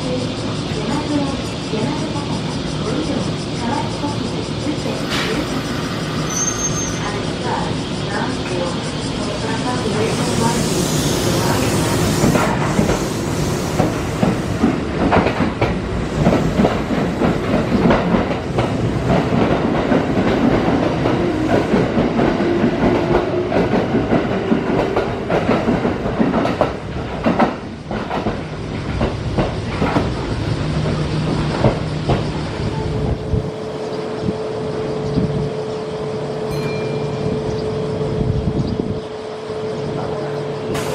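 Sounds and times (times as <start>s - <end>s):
train motor hum: 0.1s - 25.4s
train wheels clattering over joints: 3.6s - 32.7s.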